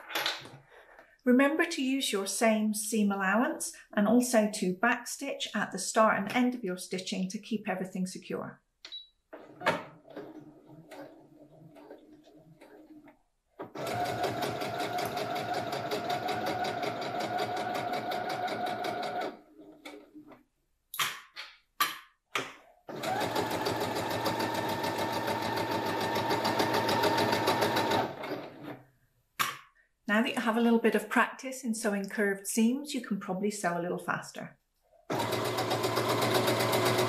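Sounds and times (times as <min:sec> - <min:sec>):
sewing machine stitching: 0:09.4 - 0:20.4, 0:22.9 - 0:28.8, 0:35.1 - 0:37.0.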